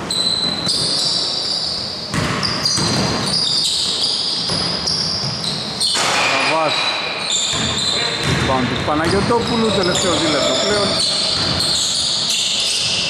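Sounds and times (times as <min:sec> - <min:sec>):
sneakers squeaking: 0:00.0 - 0:13.0
basketball bouncing on wooden floor: 0:02.1 - 0:03.2, 0:07.4 - 0:09.8, 0:10.9 - 0:12.0.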